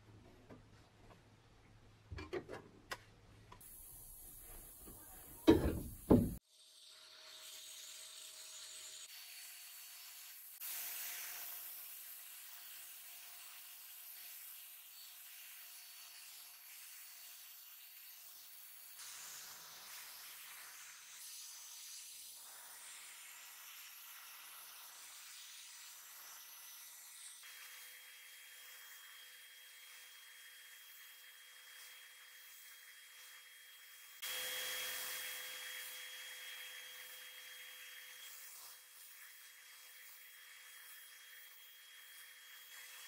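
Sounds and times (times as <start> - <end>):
sandblast gun hissing: 3.6 - 6.4.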